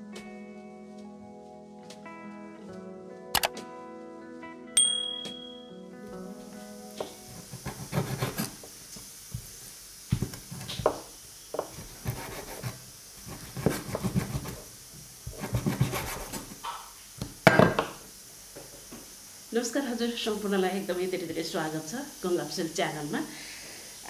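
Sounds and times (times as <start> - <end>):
scraping on cutting board: 7.4 - 8.6, 11.6 - 14.7, 15.3 - 16.6.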